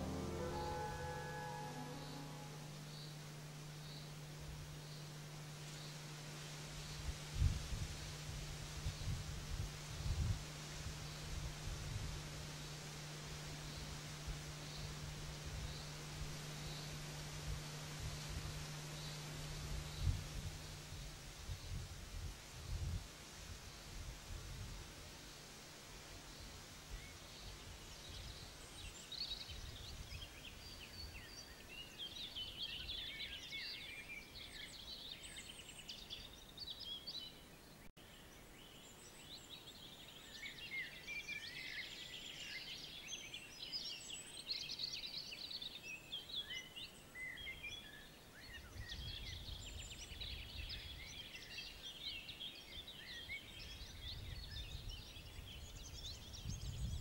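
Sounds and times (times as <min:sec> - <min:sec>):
songbirds chirping and trilling: 0:00.0 - 0:21.9
faint low rumble: 0:00.0 - 0:28.5.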